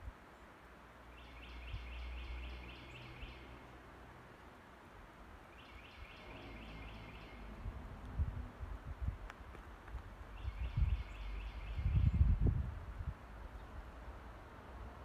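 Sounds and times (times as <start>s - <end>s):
songbird singing repeated notes: 0.2s - 3.8s, 5.4s - 8.1s, 10.3s - 12.6s
low rumble: 6.2s - 9.2s.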